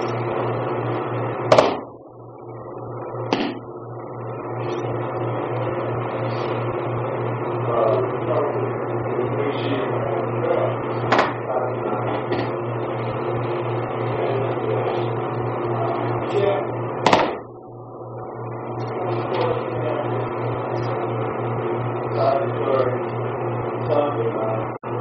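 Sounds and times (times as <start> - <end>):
low hum and hiss: 0.0 - 25.0
thumps on training mat: 1.5 - 1.8, 3.3 - 3.6, 17.1 - 17.4.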